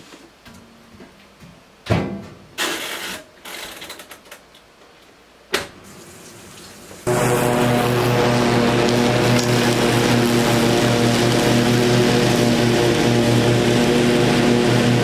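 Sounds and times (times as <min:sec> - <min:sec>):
riding lawn mower engine: 0:07.1 - 0:15.0.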